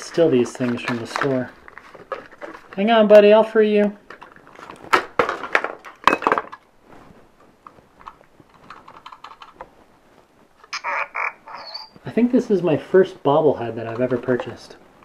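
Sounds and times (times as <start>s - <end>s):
plastic clicks and rattles: 0.1s - 2.8s, 8.0s - 9.7s.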